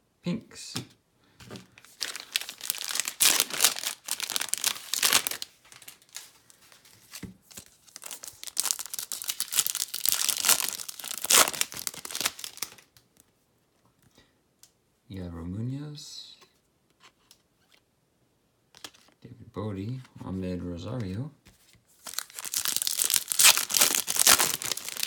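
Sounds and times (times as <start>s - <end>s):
foil wrapper crinkling and tearing: 1.8s - 6.9s, 7.5s - 13.0s, 22.0s - 25.0s.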